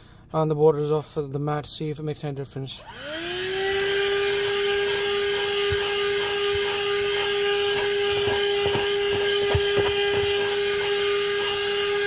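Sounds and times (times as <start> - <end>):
handheld vacuum motor whine: 2.8 - 12.0.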